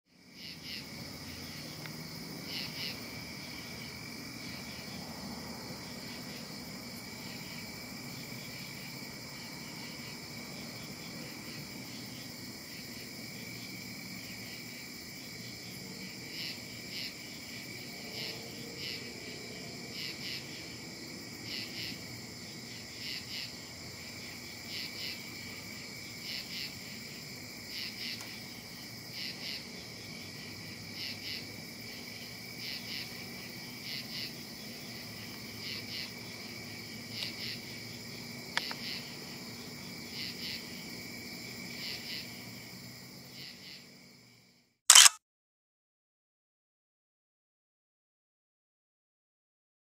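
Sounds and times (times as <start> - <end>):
insects droning and chirping: 0.1 - 45.1
sharp click: 44.9 - 45.2.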